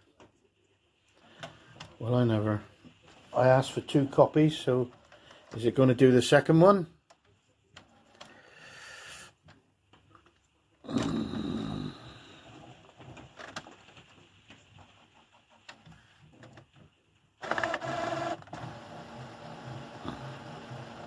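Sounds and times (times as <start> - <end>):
printer motor whirring: 17.4 - 21.0.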